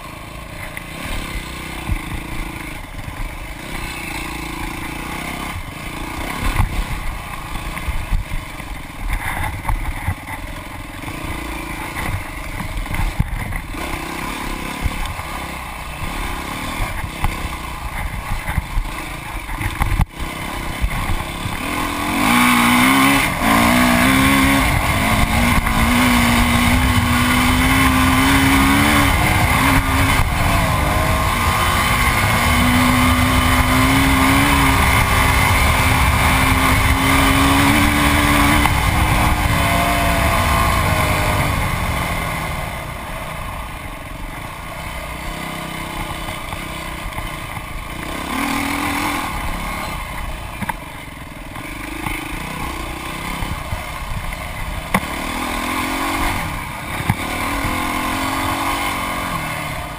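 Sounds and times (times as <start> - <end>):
dirt bike engine revving: 0.0 - 59.9
wind noise on microphone: 16.0 - 43.0.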